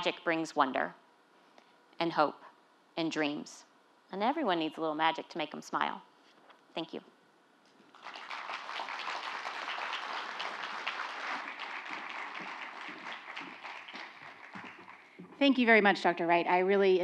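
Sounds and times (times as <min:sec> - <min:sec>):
audience applauding: 0:07.9 - 0:15.2.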